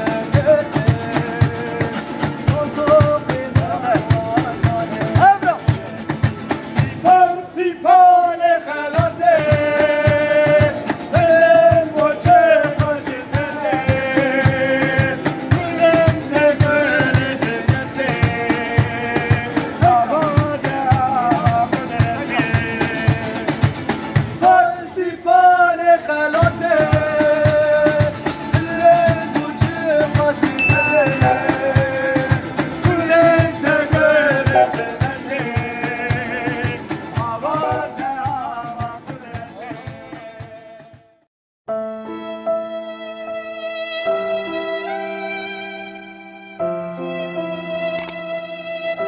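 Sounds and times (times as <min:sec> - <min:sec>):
man singing: 0:00.0 - 0:41.2
acoustic guitars strummed: 0:00.0 - 0:41.3
cajon beat: 0:00.0 - 0:41.3.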